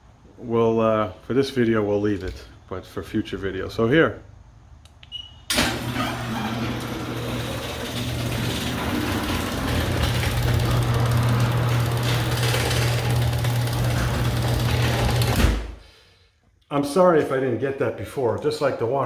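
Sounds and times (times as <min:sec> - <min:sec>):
garage door opener motor humming: 0:05.5 - 0:15.7.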